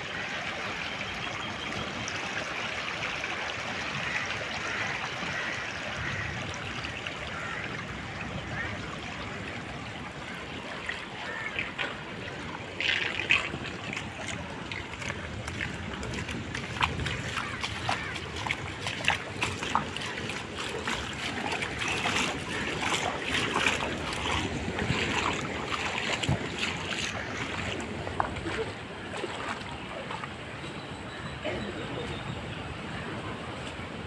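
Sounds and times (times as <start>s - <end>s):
seawater rushing and splashing: 0.0s - 30.6s
loud water splash: 10.9s - 29.7s.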